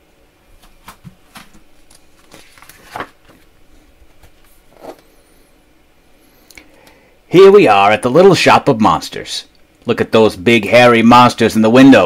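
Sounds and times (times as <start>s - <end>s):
paper page turning: 0.8s - 5.0s.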